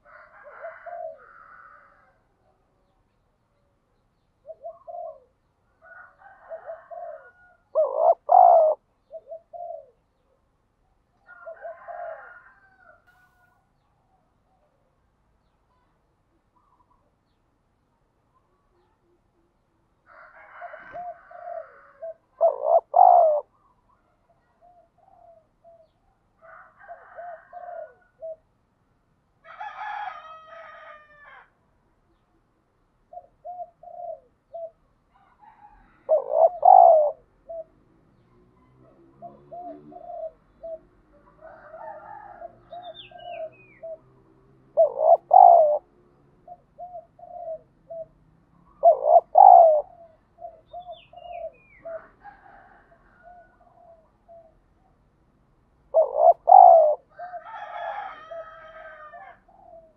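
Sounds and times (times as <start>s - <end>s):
dove cooing: 0.0s - 2.2s, 4.4s - 10.3s, 11.2s - 13.4s, 20.2s - 28.5s, 33.1s - 55.0s, 55.9s - 59.9s.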